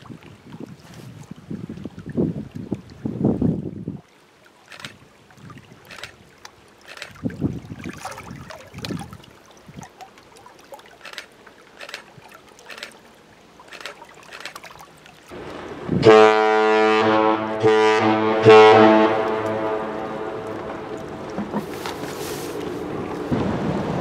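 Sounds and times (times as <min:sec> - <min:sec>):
wind buffeting microphone: 0:00.0 - 0:04.1, 0:07.0 - 0:10.0, 0:15.3 - 0:16.3, 0:19.0 - 0:24.0
ship horn long blast: 0:15.4 - 0:21.3.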